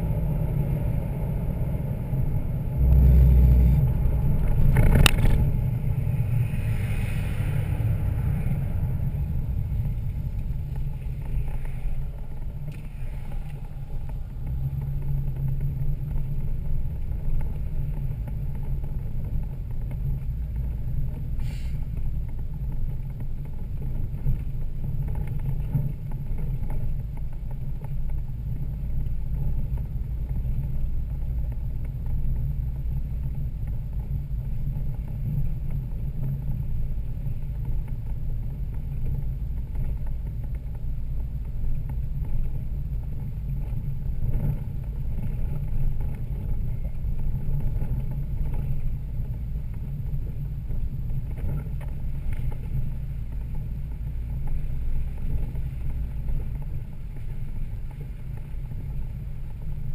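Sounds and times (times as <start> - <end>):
truck engine rumbling: 0.0 - 23.2.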